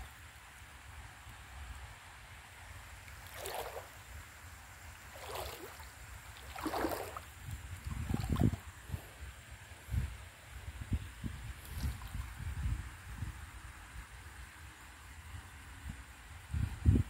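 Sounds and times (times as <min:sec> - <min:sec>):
person wading through water: 0:03.0 - 0:04.1, 0:05.0 - 0:08.7.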